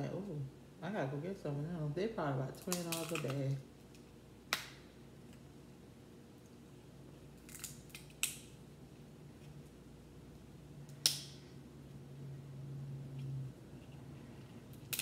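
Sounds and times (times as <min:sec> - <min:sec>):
crab shell cracking: 0:02.6 - 0:05.4, 0:07.3 - 0:08.6, 0:14.7 - 0:15.0.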